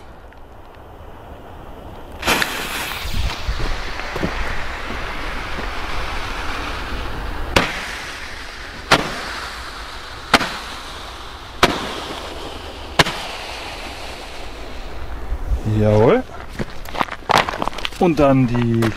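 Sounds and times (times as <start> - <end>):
firework hiss: 0.0 - 16.0
roman candle shots popping: 1.9 - 4.4, 7.5 - 15.0.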